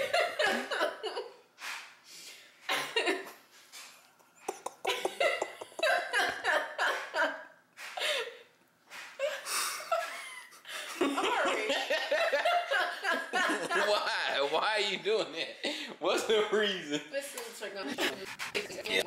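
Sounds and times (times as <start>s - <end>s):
person laughing: 4.4s - 7.3s.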